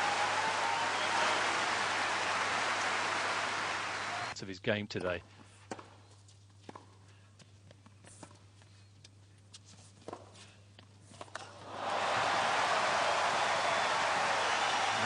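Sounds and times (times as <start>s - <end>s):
crowd applause and cheering: 0.0s - 4.4s, 11.6s - 15.0s.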